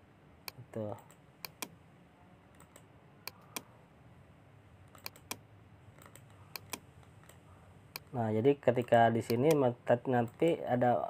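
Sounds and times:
computer mouse clicks: 0.5 - 1.7, 4.9 - 5.4, 6.0 - 8.2.

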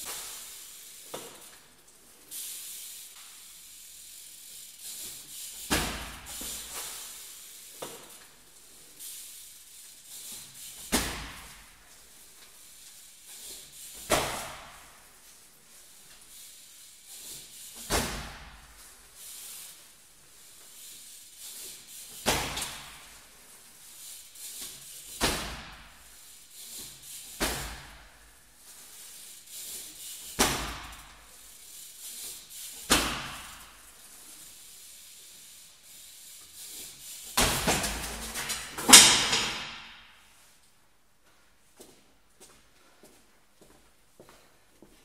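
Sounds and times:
bike clattering on concrete: 0.0 - 1.7, 4.5 - 8.4, 9.0 - 15.2, 17.1 - 19.4, 20.6 - 23.3, 24.0 - 28.2, 28.8 - 31.4, 32.0 - 33.9, 36.5 - 40.4.

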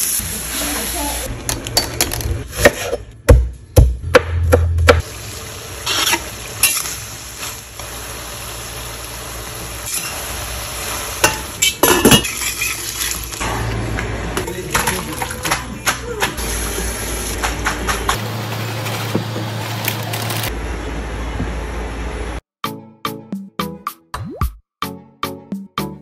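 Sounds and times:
meat sizzling in a skillet: 5.0 - 11.6.

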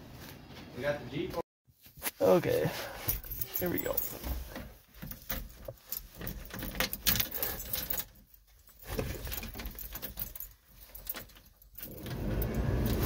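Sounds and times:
keys jangling on ring: 3.1 - 13.0.

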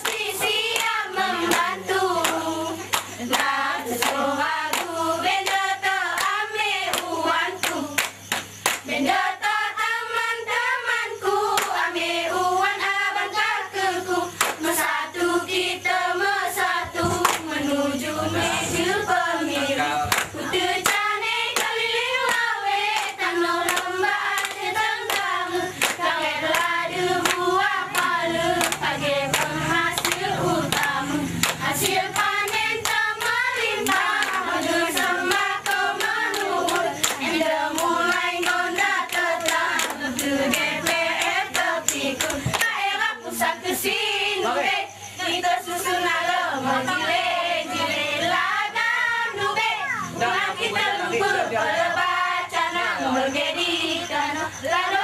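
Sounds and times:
hands clapping: 0.0 - 9.0, 11.6 - 11.8, 14.4 - 14.8, 17.0 - 17.6, 20.0 - 42.8
women singing a chant in unison: 0.0 - 55.0.

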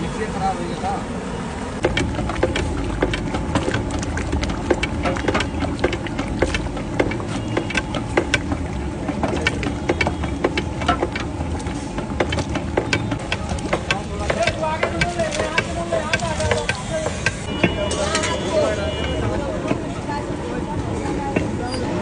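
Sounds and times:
utensils clicking against metal pot: 1.8 - 18.5.

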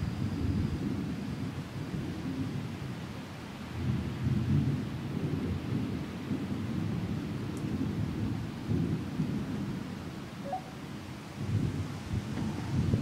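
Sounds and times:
thunder rumbling: 3.8 - 13.0.

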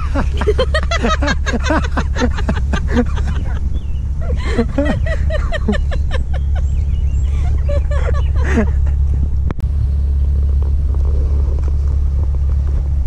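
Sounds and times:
woman laughing: 0.0 - 9.1
car engine rumble: 0.0 - 13.0.

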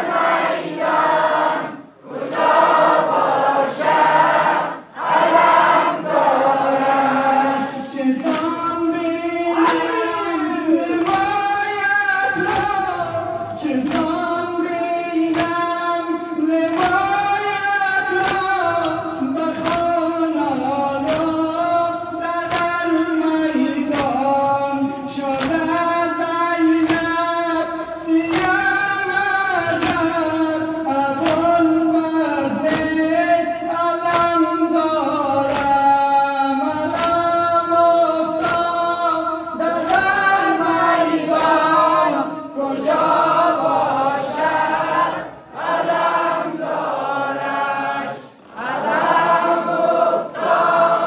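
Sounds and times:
crowd chanting a lament: 0.0 - 51.0
chest-beating slaps: 8.2 - 42.1.

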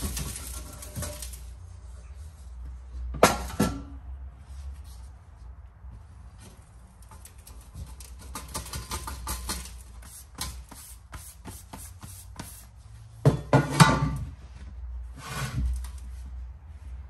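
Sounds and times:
hard objects tapping and clicking: 7.1 - 9.8.

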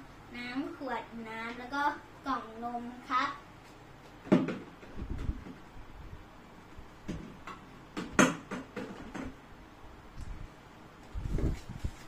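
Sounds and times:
items knocking into plastic bin: 4.3 - 4.7.

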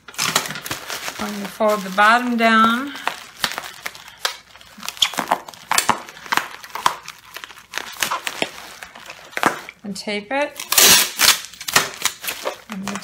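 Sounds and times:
bubble wrap crinkling and crackling: 0.0 - 13.0.

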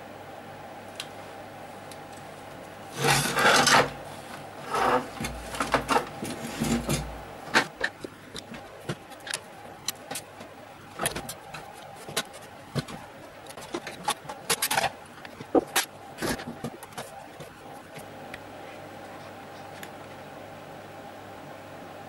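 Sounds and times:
plastic scraping on wood: 2.9 - 18.0
clicks and knocks of plastic: 4.8 - 18.1.

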